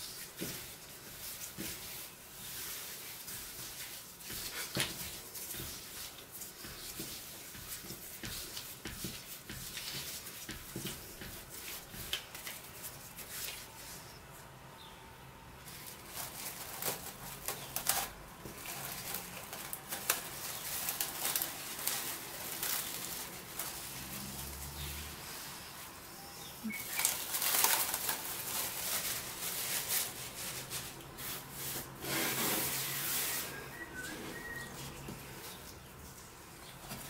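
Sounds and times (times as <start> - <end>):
hands kneading dough: 0.0 - 14.6, 15.6 - 37.0
cling film crinkling: 15.6 - 24.7, 26.6 - 31.5.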